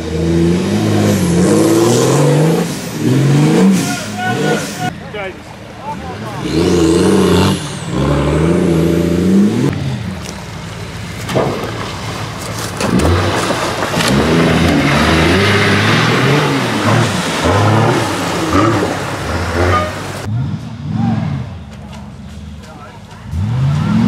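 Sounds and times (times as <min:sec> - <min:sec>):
engine revving hard: 0:00.0 - 0:04.9, 0:06.4 - 0:10.0, 0:12.8 - 0:21.5.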